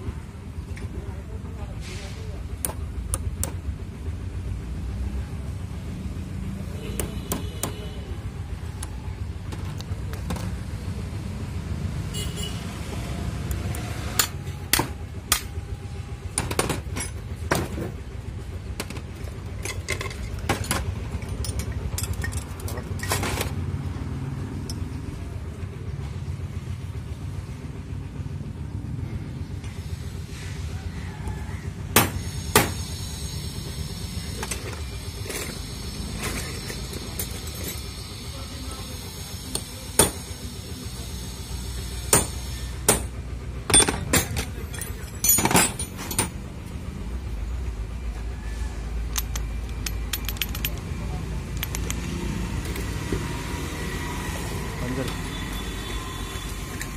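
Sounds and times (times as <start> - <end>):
metal tools clinking: 16.4 - 17.7, 18.8 - 23.5, 36.2 - 38.0, 43.7 - 46.4, 49.1 - 51.0.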